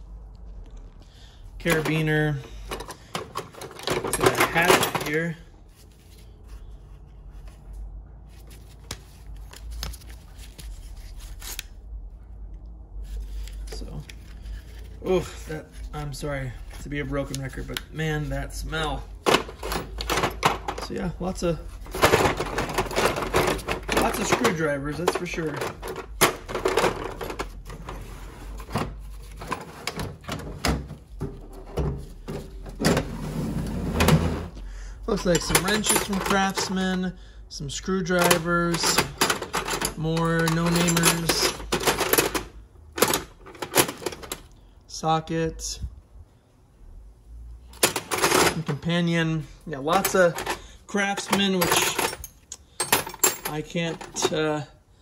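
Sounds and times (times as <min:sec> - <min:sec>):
metal tools clinking in drawer: 0:01.6 - 0:05.4, 0:18.7 - 0:33.2, 0:35.1 - 0:37.1, 0:38.0 - 0:44.5, 0:47.7 - 0:48.9, 0:49.9 - 0:54.6
drawer sliding shut: 0:25.5 - 0:34.6.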